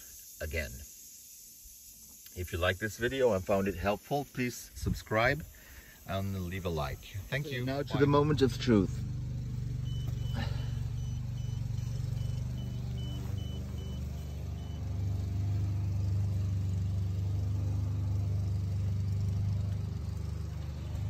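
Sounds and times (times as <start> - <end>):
lawnmower motor hum: 4.7 - 21.0
high warning beeps: 9.6 - 15.0.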